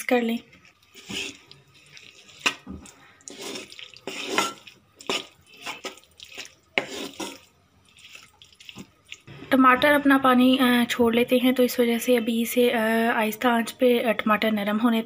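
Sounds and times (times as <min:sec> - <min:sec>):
spatula scraping metal pan: 0:00.9 - 0:02.7, 0:03.3 - 0:08.4.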